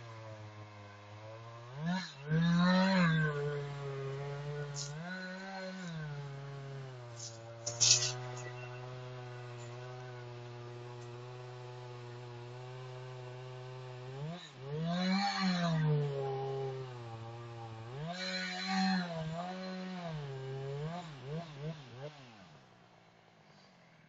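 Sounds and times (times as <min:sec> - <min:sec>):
chainsaw running at high revs: 0:00.0 - 0:24.0
sharp crack: 0:07.2 - 0:08.5.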